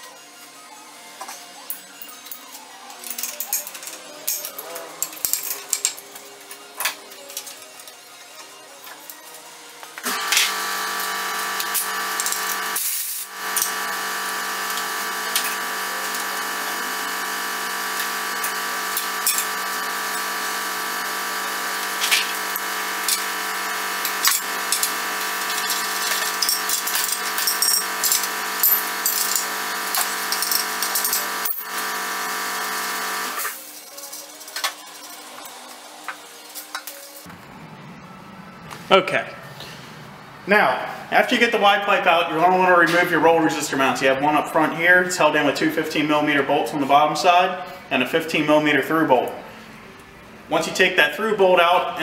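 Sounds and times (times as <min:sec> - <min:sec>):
power tool motor whining: 0:10.0 - 0:33.6.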